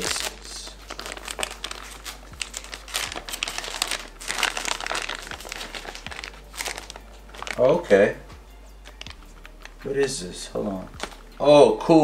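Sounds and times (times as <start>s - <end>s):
packaging crinkling and rustling: 0.0s - 8.0s, 10.9s - 11.2s.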